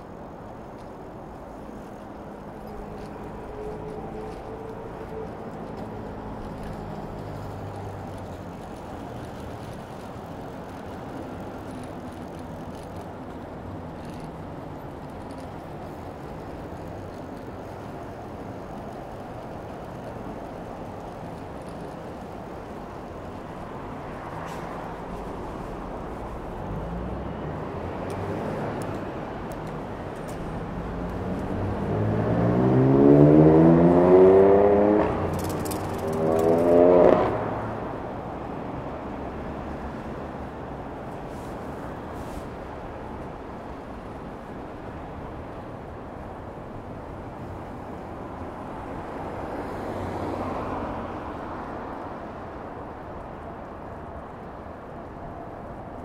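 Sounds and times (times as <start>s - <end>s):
road noise hum: 0.0s - 56.0s
motor vehicle accelerating: 24.0s - 38.3s.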